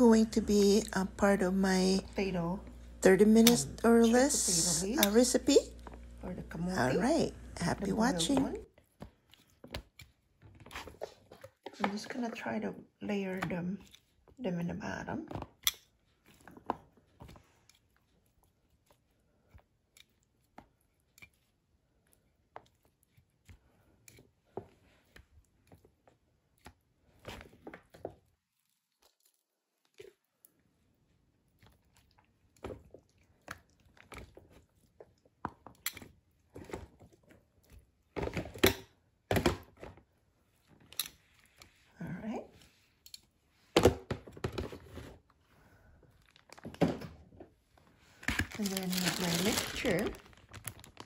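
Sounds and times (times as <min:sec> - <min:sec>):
wet rustling of leaves: 0:48.4 - 0:51.0.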